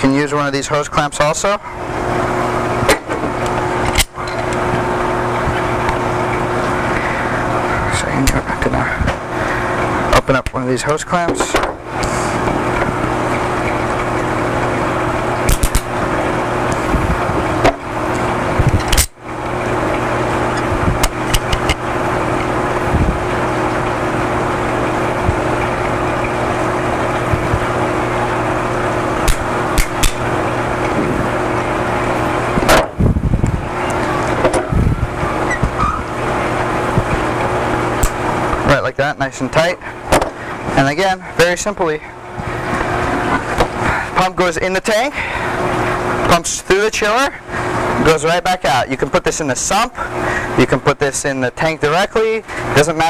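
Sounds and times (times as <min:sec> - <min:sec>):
machine hum: 0:00.0 - 0:53.0
pliers clicking on hose clamp: 0:15.5 - 0:15.9.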